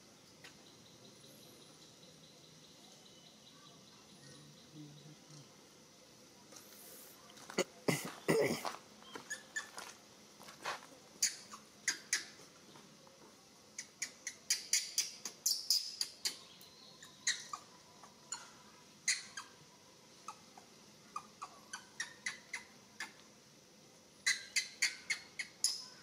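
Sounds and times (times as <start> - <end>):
monkey squeaking: 9.2 - 9.8, 11.2 - 12.4, 13.8 - 16.4, 17.0 - 19.6, 20.3 - 20.5, 21.2 - 23.2, 24.2 - 26.0.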